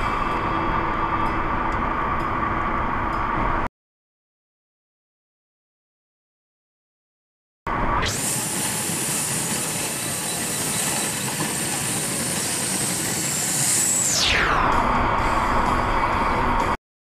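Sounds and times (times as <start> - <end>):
fast-forward road noise hissing rush: 7.7 - 16.8
whine sweeping in pitch: 7.7 - 16.8.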